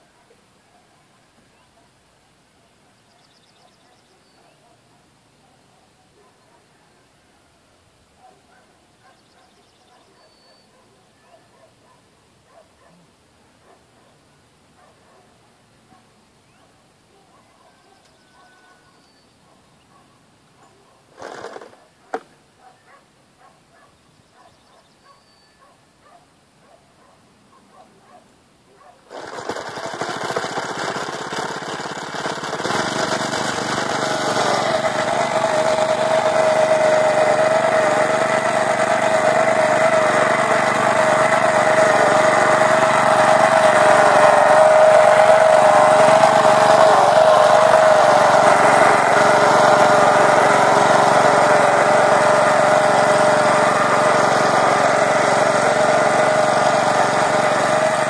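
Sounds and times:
cultivator motor running: 0:21.2 - 0:21.8, 0:29.1 - 0:58.0.

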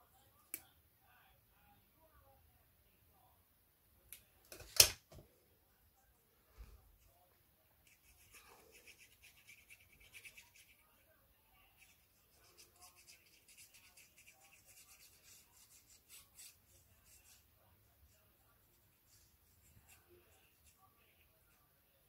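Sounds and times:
glue stick rubbing on paper: 0:07.8 - 0:10.8, 0:11.8 - 0:17.5.

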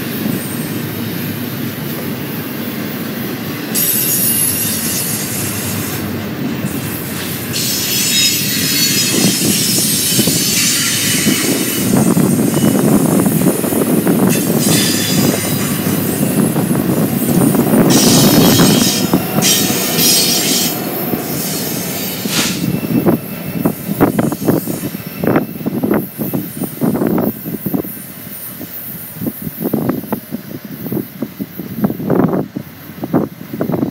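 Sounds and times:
train wheels rolling on rails: 0:00.0 - 0:33.9
high wheel squeal: 0:03.6 - 0:30.2
train wheel clacks: 0:03.7 - 0:26.0.

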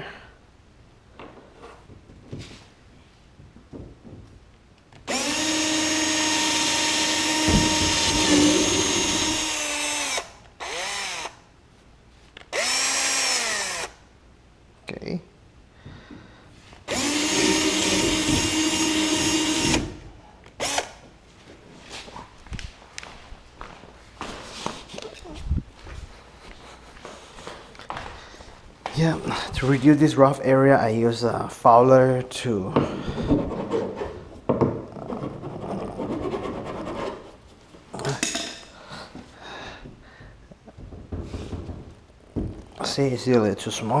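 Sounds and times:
cordless drill boring: 0:05.1 - 0:11.4, 0:12.5 - 0:14.0, 0:16.9 - 0:20.0, 0:20.6 - 0:20.9
file rasping on plastic: 0:35.0 - 0:37.3.

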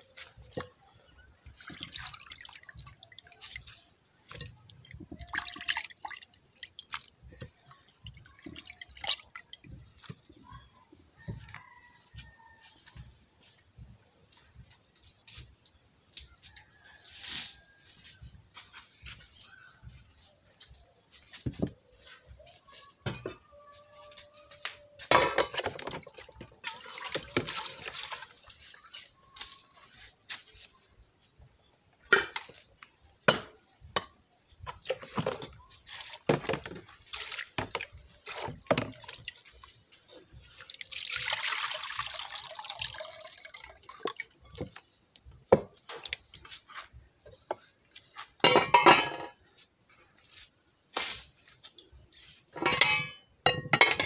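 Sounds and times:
water splashing and pouring: 0:01.5 - 0:10.3, 0:25.6 - 0:28.9, 0:35.9 - 0:44.6
pots and utensils clinking: 0:25.0 - 0:28.2, 0:33.2 - 0:34.2, 0:48.4 - 0:49.4, 0:52.5 - 0:54.0.

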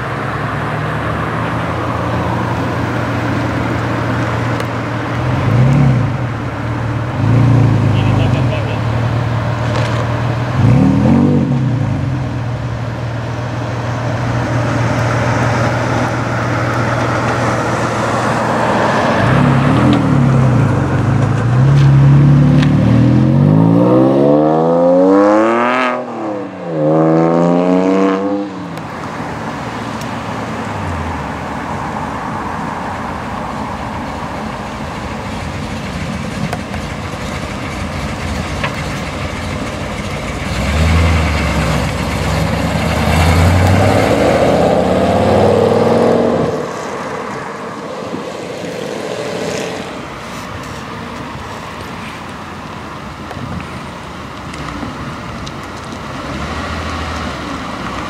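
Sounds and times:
car engine accelerating past: 0:13.9 - 0:30.0, 0:37.6 - 0:50.7.

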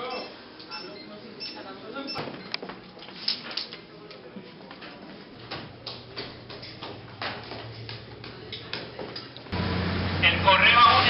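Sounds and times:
footsteps on hard floor and stairs: 0:04.6 - 0:09.4.

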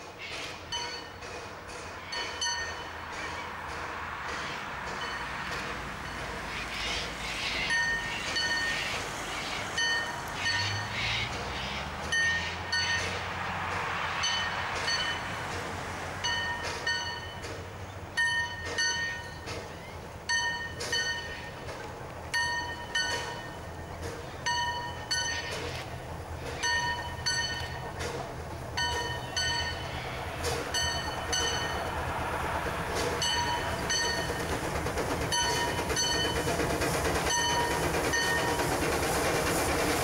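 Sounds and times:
steam locomotive rumble and exhaust: 0:00.0 - 0:40.0
high ringing wheel squeals: 0:06.9 - 0:08.9, 0:09.8 - 0:11.2, 0:12.1 - 0:13.2, 0:28.8 - 0:31.9.

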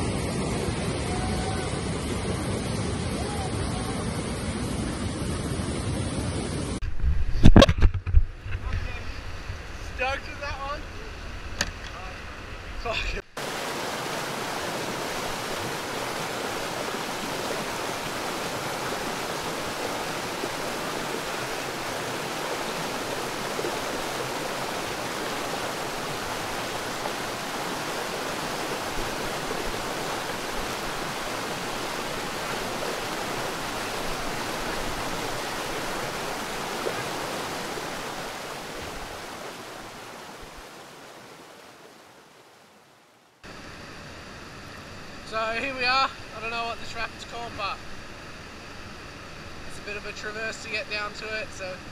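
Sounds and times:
whitewater rapids rushing: 0:13.4 - 0:42.4.

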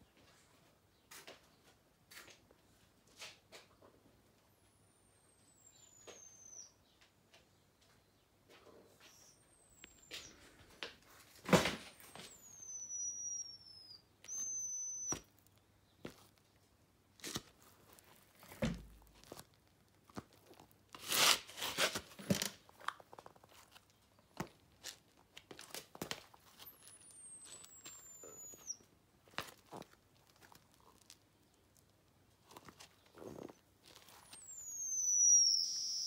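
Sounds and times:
wet shoe squeaking: 0:12.0 - 0:16.4, 0:25.6 - 0:28.8, 0:32.4 - 0:36.0
rubber rubbing against skin: 0:21.0 - 0:22.3.

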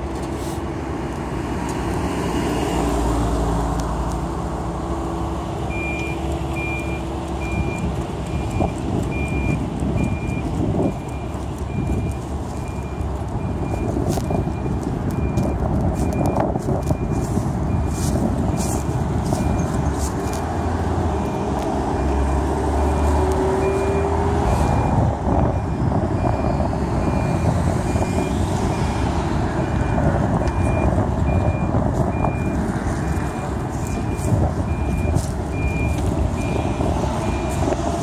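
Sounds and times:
street traffic: 0:00.0 - 0:38.0
backup alarm beeping: 0:05.7 - 0:20.4, 0:21.2 - 0:25.0, 0:29.6 - 0:37.6
car engine rumbling past: 0:17.6 - 0:38.0.

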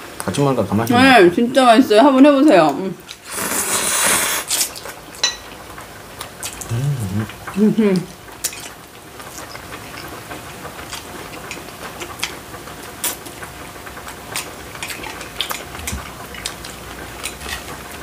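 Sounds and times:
chewing and slurping: 0:03.0 - 0:05.2, 0:06.1 - 0:07.6, 0:08.3 - 0:18.0.

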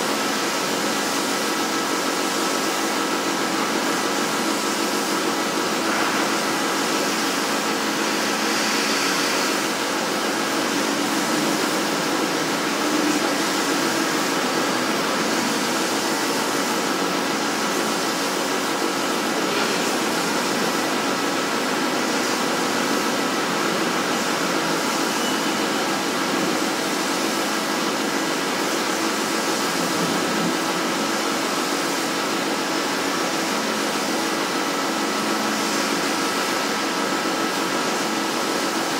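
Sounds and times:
plasma cutter torch hissing: 0:02.4 - 0:38.4.

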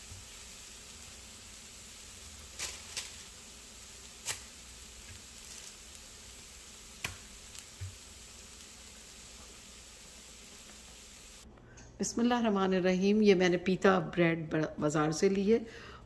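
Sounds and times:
chicken sizzling in frying pan: 0:00.0 - 0:11.4
sharp pops of frying: 0:00.0 - 0:11.4.

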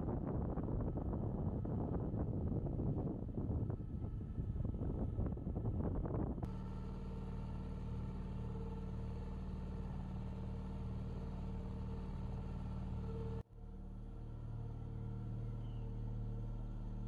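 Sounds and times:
outboard motor droning: 0:06.5 - 0:17.0.

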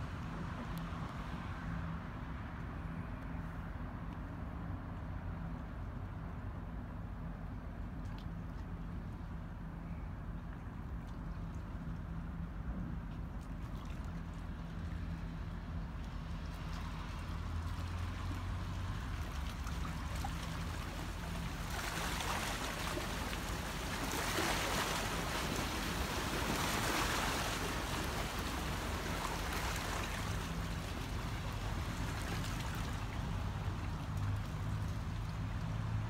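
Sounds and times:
rushing water-like noise: 0:16.0 - 0:36.0.

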